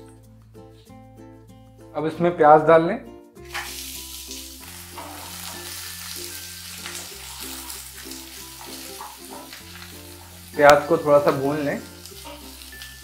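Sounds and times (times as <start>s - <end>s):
background music: 0.0s - 13.0s
onions sizzling in oil: 3.4s - 13.0s.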